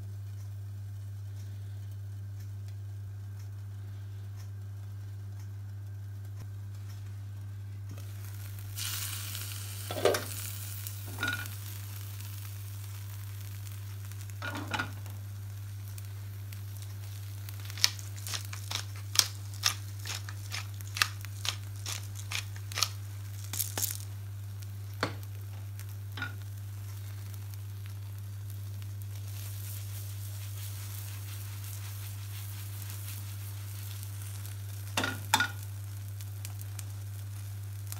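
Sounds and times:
omelette sizzling in a frying pan: 0:06.6 - 0:37.9
sharp seasoning clicks: 0:07.9 - 0:37.9.

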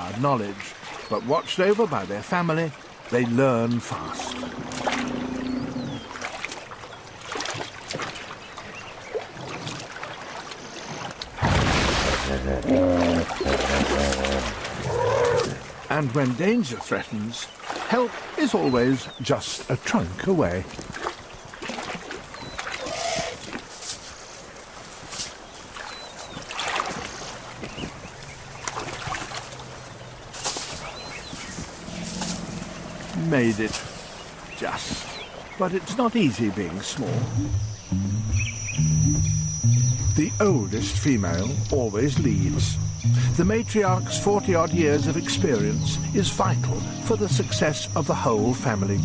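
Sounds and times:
water splashing and dripping: 0:00.0 - 0:37.9.

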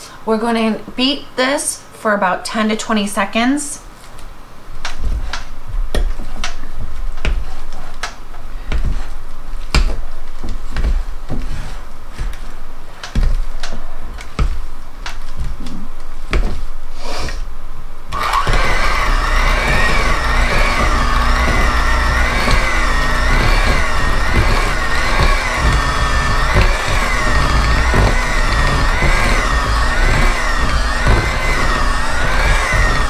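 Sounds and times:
electric mixer running: 0:18.1 - 0:33.0.

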